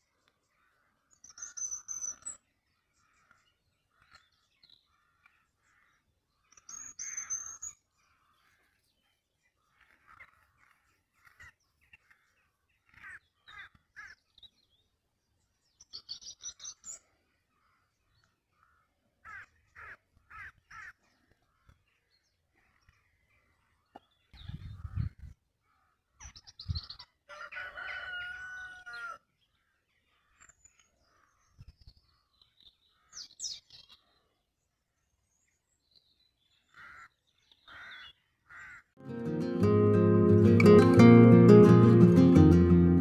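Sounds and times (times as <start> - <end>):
birds harsh repeated calls: 0.0 - 14.7, 15.9 - 27.2, 36.5 - 39.0.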